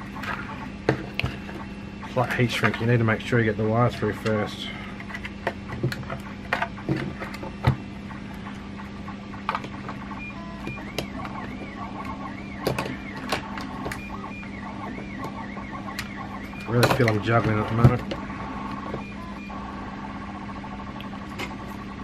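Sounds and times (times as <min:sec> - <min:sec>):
faint wavering whine: 0:00.0 - 0:22.0
steady low hum: 0:00.0 - 0:22.0
plastic parts clicking and knocking: 0:05.0 - 0:07.8, 0:10.6 - 0:14.1, 0:15.0 - 0:18.2.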